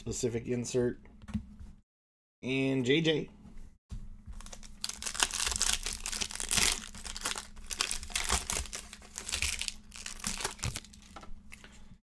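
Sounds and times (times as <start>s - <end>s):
foil wrapper crinkling: 4.3s - 11.2s.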